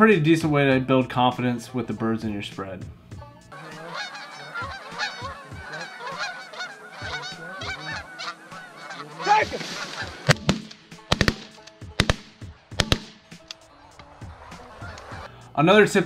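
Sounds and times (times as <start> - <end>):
geese honking: 3.4 - 15.4.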